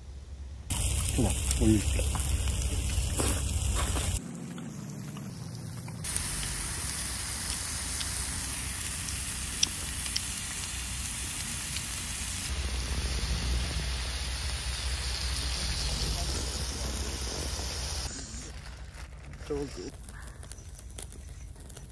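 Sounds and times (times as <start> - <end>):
meat sizzling on a griddle: 0.8 - 4.2, 6.0 - 18.4.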